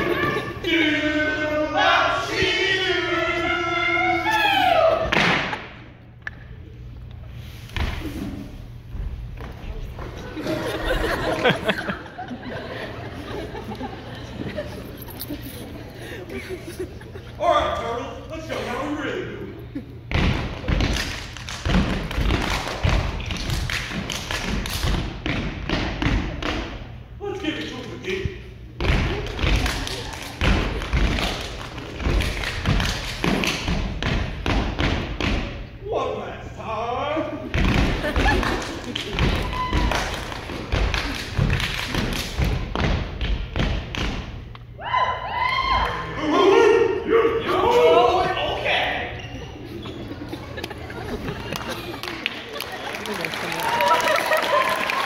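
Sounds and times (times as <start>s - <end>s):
stomps and slaps on wooden stage: 5.0s - 5.8s, 20.1s - 26.9s, 28.8s - 35.7s, 37.5s - 44.5s
feet stomping on stage: 37.5s - 44.4s.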